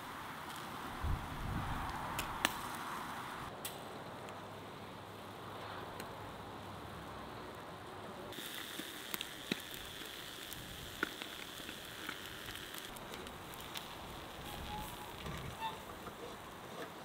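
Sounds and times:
charcoal crackling pops: 0:00.0 - 0:01.2, 0:01.8 - 0:03.0, 0:08.4 - 0:16.2
fish sizzling on a grill: 0:00.0 - 0:03.5, 0:08.3 - 0:17.0.

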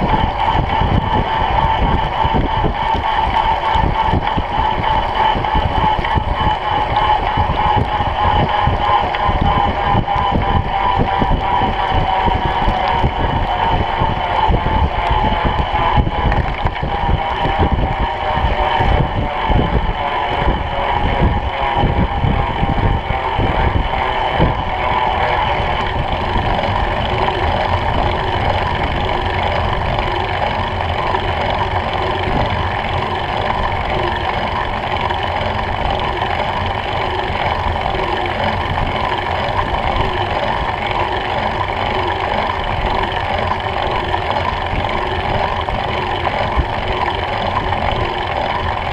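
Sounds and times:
bike tyres rolling on wet tarmac: 0:00.0 - 0:48.9
wind buffeting microphone: 0:00.0 - 0:48.9.

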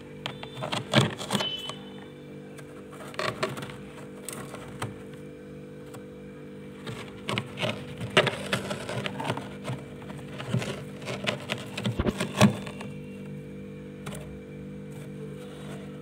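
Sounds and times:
frost crunching in metal bowl: 0:06.8 - 0:13.0.

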